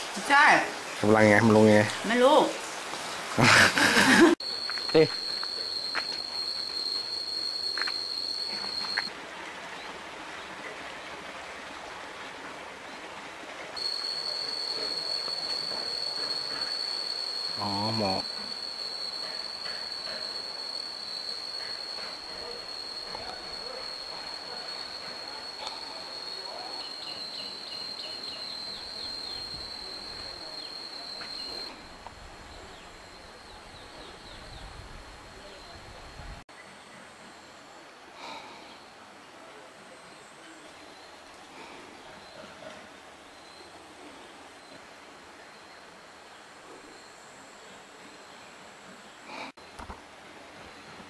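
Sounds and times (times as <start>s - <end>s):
faint outdoor hiss: 0.0s - 51.0s
high-pitched insect drone: 3.4s - 9.1s, 13.8s - 36.4s
bird chirping: 13.8s - 31.7s.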